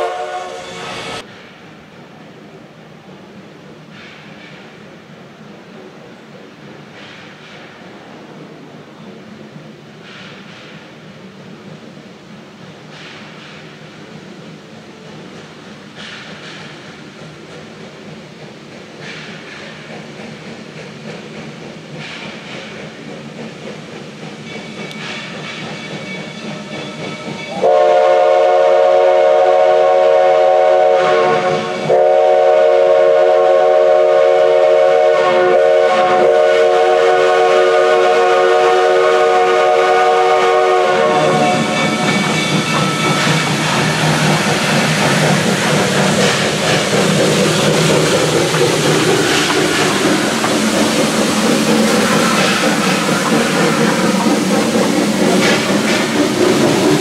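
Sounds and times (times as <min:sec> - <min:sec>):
steam locomotive whistle: 0:00.0 - 0:01.3, 0:26.0 - 0:46.8
steam locomotive hissing and rumbling: 0:00.0 - 0:57.0.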